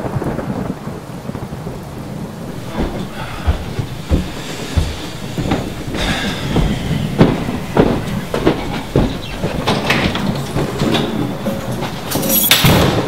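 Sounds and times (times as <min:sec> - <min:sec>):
steady low rumble: 0:02.3 - 0:12.1
footsteps on stairs: 0:02.4 - 0:13.0.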